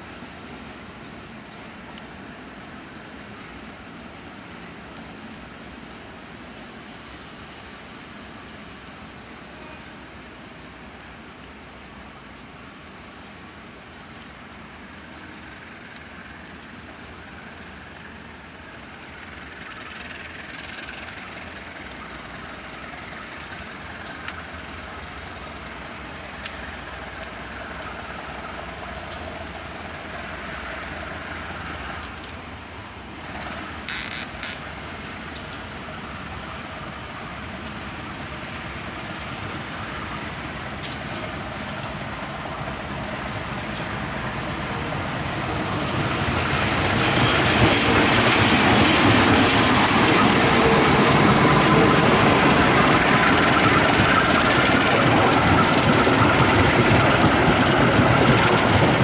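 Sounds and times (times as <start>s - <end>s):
electric train running: 41.8s - 59.0s.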